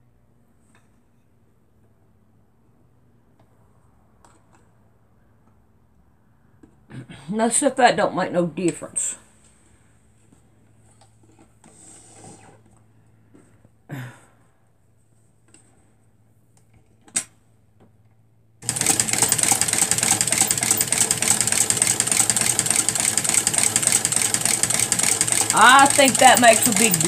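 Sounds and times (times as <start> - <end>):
electric sewing machine running: 18.6 - 27.0.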